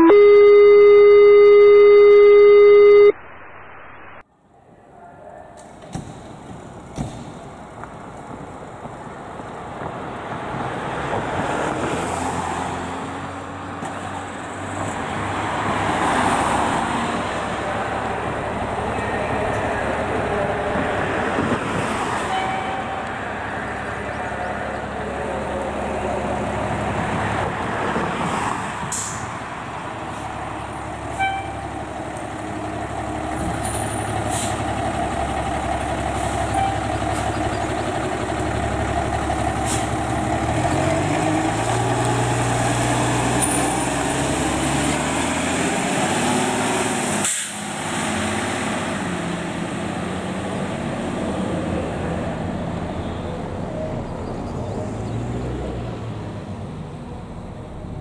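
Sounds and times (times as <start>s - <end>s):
fire engine diesel engine revving: 30.0s - 52.5s
air brake hisses: 34.3s - 34.7s, 47.2s - 47.7s.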